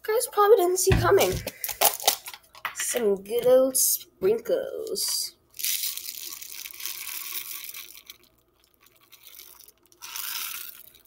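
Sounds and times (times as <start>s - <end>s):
sprinkles rattling in plastic tub: 5.6s - 11.0s.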